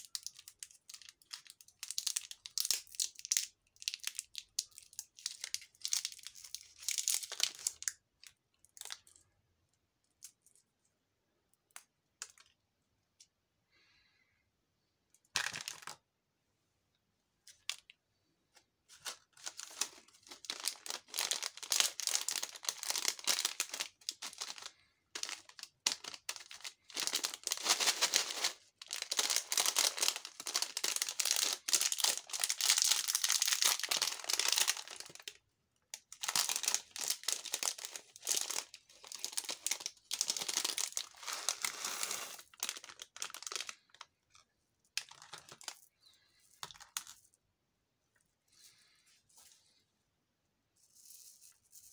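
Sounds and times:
plastic wrapper crinkling: 0.0 - 9.2, 17.5 - 47.4.

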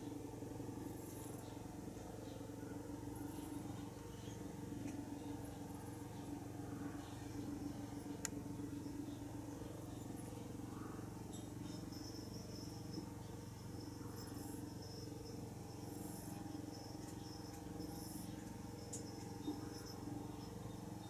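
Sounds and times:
faint small clicks: 8.2 - 8.4, 18.9 - 19.3.

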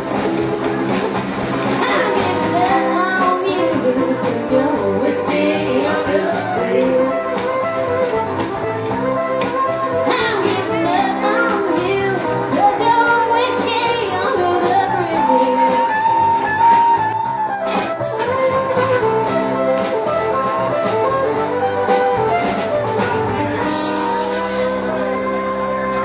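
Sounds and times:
acoustic guitar: 0.0 - 26.0
drums with cymbal and snare: 0.0 - 26.0
electric bass: 0.0 - 26.0
fiddle holding long notes: 5.6 - 26.0.

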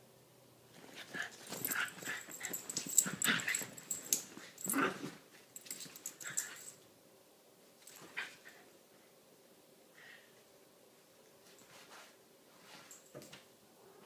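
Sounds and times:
small dogs play-fighting: 0.7 - 6.8, 7.8 - 8.7.

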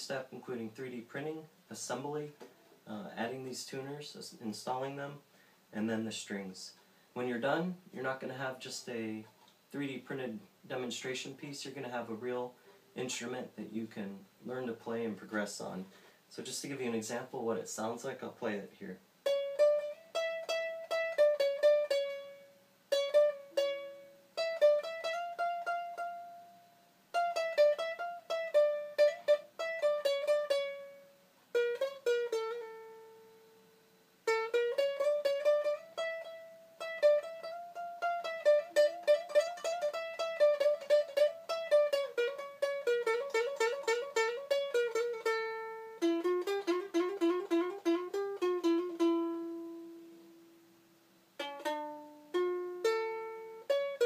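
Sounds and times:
ukulele melody picked: 19.2 - 50.7, 51.4 - 54.0.

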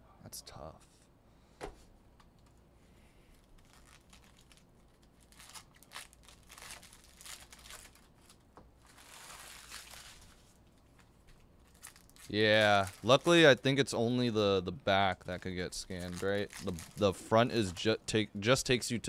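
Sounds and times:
foil pack tearing and crinkling: 3.4 - 10.6, 11.6 - 13.5, 15.8 - 17.8.

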